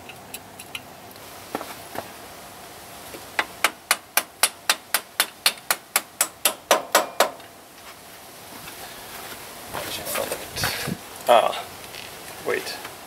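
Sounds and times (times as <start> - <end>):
hammer striking: 3.4 - 7.4.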